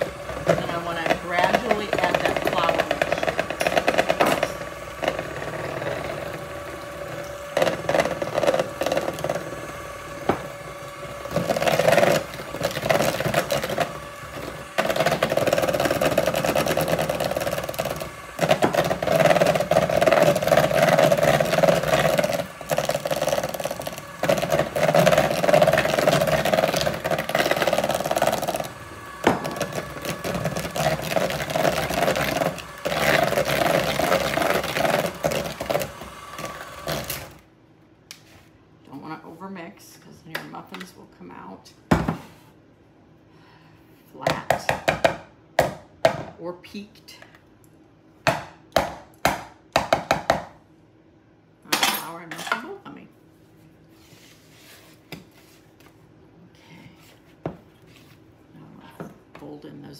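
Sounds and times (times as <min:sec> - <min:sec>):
electric hand mixer running: 0:00.0 - 0:37.5.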